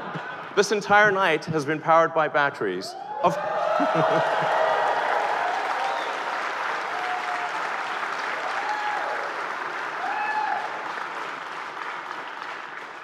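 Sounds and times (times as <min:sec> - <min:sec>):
voices whooping: 0:02.9 - 0:06.2, 0:10.0 - 0:10.7
audience applauding and cheering: 0:03.0 - 0:13.0.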